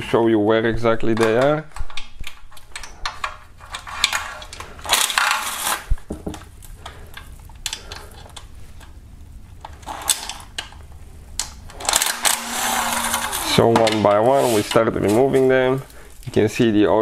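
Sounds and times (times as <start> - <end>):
power tool metallic clicks: 11.4 - 14.8
short rattling burst: 11.8 - 13.7.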